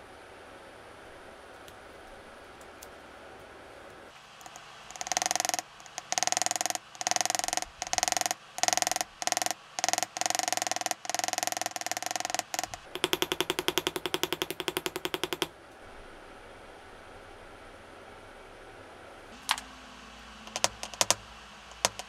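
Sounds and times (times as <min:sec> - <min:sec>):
engraving hammer chattering on metal: 0:04.4 - 0:15.5, 0:20.5 - 0:22.0.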